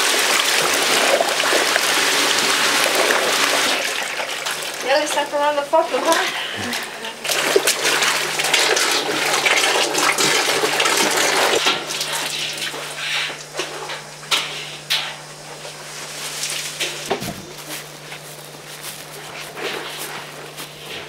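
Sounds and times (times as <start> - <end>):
water splashing in a tank: 0.0 - 14.4.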